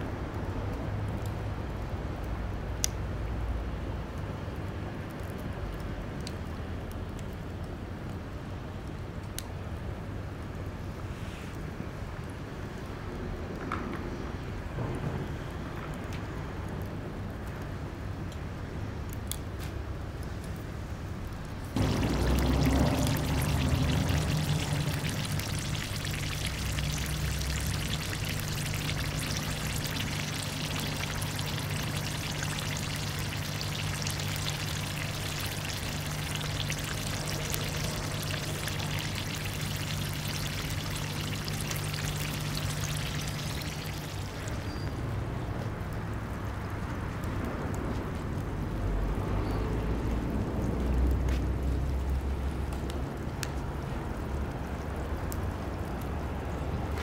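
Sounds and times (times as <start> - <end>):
steady low hum: 21.7 - 44.7
oil sizzling in a pan: 21.8 - 44.8.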